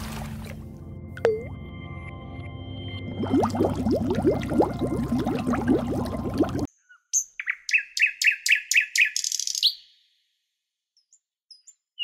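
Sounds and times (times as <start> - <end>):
music: 0.0 - 3.8
bird chirping and trilling: 6.8 - 9.9.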